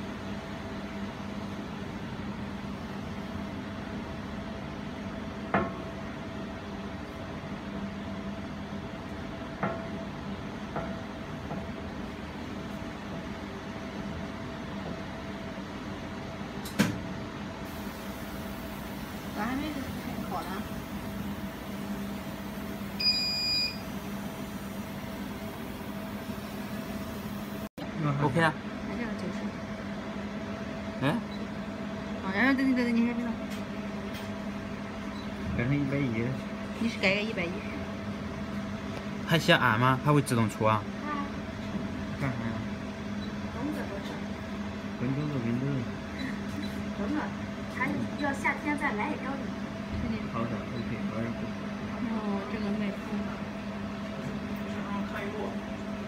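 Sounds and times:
fan noise: 0.0 - 56.0
welding machine electrical hum: 0.0 - 56.0
laser welding machine humming: 17.6 - 29.1.

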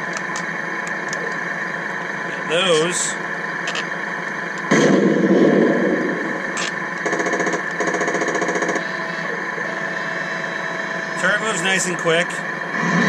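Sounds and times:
simulated engine idle: 0.0 - 13.0
loud blast: 4.7 - 6.4.

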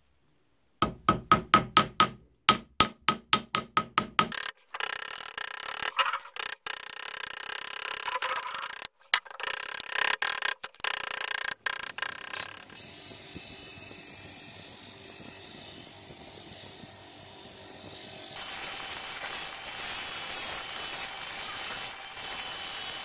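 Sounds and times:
bench grinder whirring: 4.3 - 12.8
hand tool scraping metal: 4.3 - 12.8.

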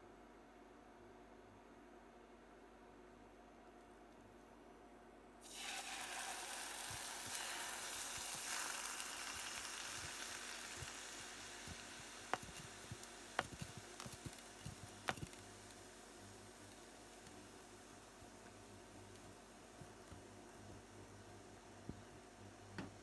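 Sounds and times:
sauce sizzling in a hot pan: 5.4 - 17.6.

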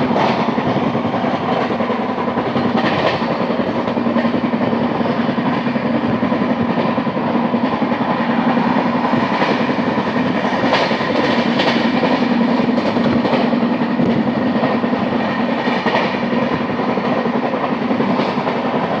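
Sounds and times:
train wheels rumbling on rails: 0.0 - 19.0
sharp clacks: 10.4 - 18.8.

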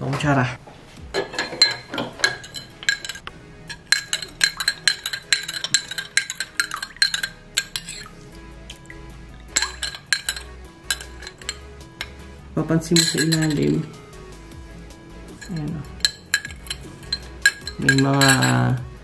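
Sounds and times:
background music: 0.0 - 19.0
teaspoon clinking in glass: 1.2 - 8.1, 9.5 - 12.2, 13.0 - 13.9, 15.3 - 18.8.

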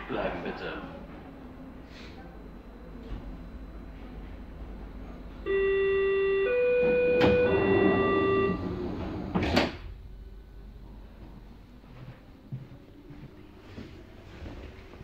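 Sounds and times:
train door warning beeps: 3.2 - 10.6
sliding doors shutting with thud: 6.6 - 9.9.

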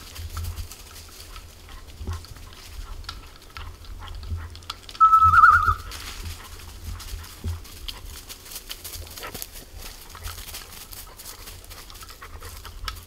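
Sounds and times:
wind rumbling on microphone: 0.0 - 13.0
dog whistle warble: 5.0 - 5.9
footsteps crunching dry leaves: 5.3 - 12.4.

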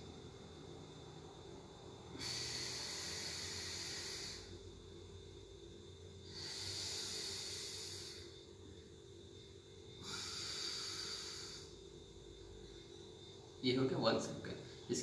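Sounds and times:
man breathing through nostril: 2.1 - 4.6, 6.2 - 8.4, 10.0 - 11.8.

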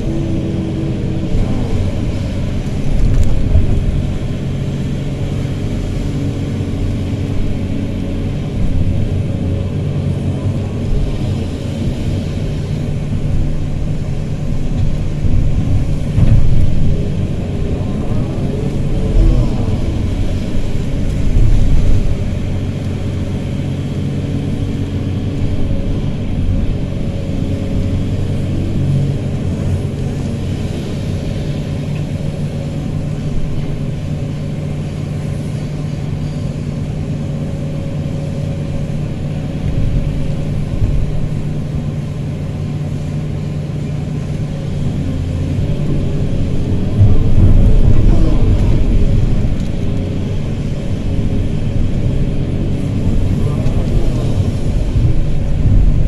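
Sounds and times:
excavator diesel engine running: 0.0 - 56.0.

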